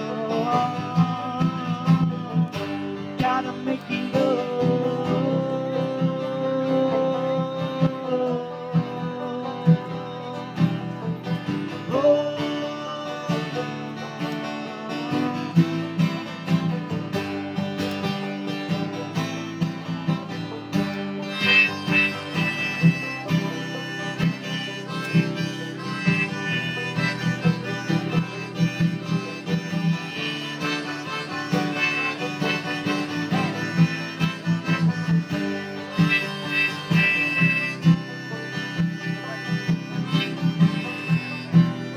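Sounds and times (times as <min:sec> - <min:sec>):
man singing: 0:00.0 - 0:16.0, 0:21.4 - 0:38.4
picked banjo: 0:00.0 - 0:41.9
strummed acoustic guitar: 0:00.0 - 0:41.9.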